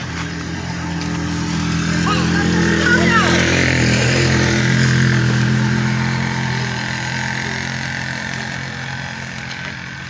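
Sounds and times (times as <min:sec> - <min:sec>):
small vehicle engine running: 0:00.0 - 0:10.0.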